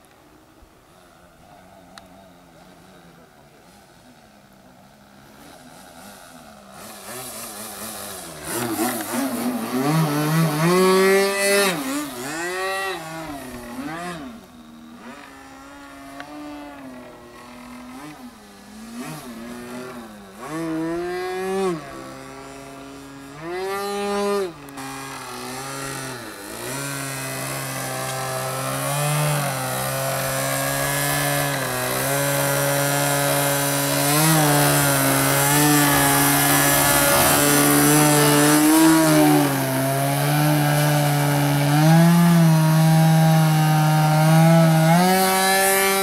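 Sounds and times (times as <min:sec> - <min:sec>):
model airplane motor and propeller: 0:00.0 - 0:46.0.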